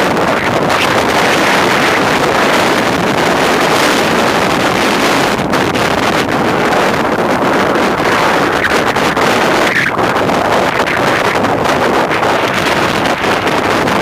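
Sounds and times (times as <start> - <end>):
strong wind buffeting microphone: 0.0 - 14.0
surf breaking on shore: 0.0 - 14.0.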